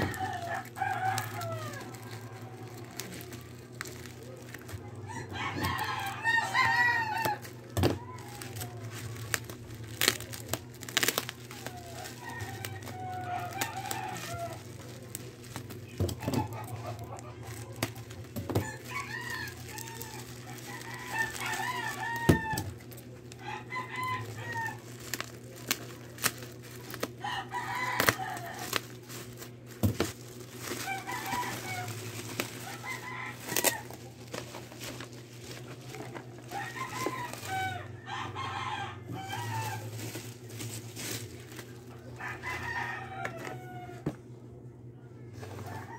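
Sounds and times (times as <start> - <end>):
bubble wrap crinkling: 0.0 - 44.2
chickens clucking: 0.0 - 44.2
roosters crowing: 0.0 - 45.9
steady low hum: 0.0 - 45.9.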